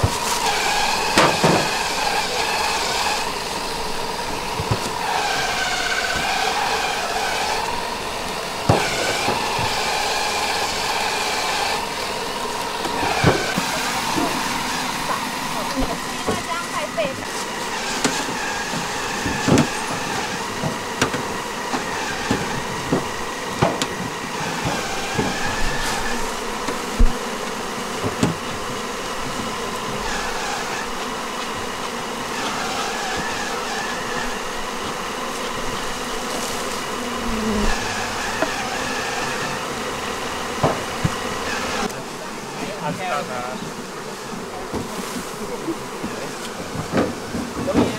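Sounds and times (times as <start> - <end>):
wooden frames knocking on boxes: 0.0 - 2.6, 8.6 - 11.2, 17.3 - 30.0, 40.4 - 41.9, 44.7 - 47.9
bees buzzing: 0.0 - 47.9.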